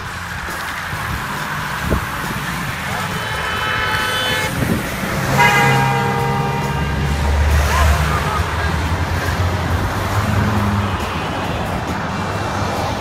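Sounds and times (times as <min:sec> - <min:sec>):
truck engine driving past: 0:00.0 - 0:13.0
vehicle horns honking: 0:01.8 - 0:12.2.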